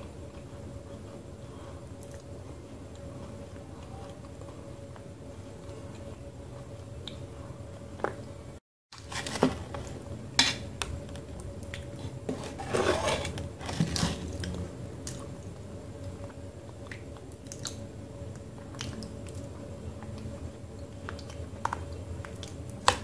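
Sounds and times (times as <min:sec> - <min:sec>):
wet squishing and chewing: 0:01.9 - 0:07.3, 0:13.6 - 0:23.0.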